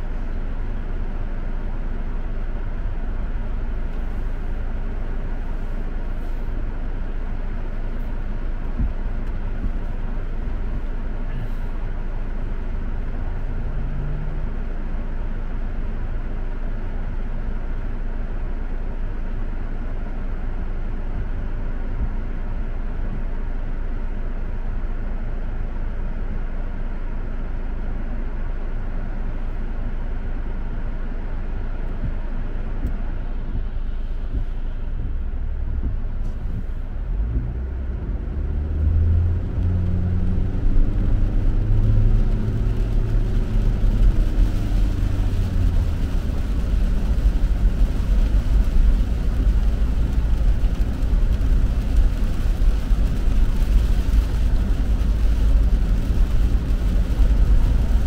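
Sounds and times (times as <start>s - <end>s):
car engine rumble: 0.0s - 58.0s
tyre hiss on wet road: 5.4s - 6.6s.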